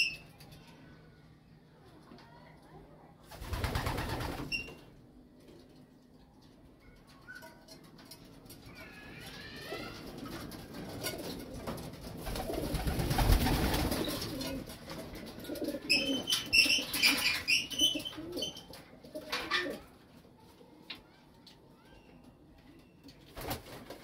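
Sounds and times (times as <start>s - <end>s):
pigeons cooing: 8.8s - 19.9s.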